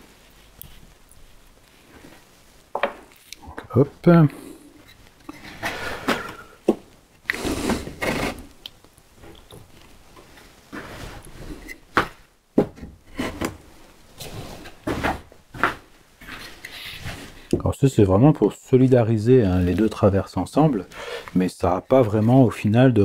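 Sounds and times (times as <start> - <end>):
wood scraping: 1.6 - 8.6, 9.2 - 17.6.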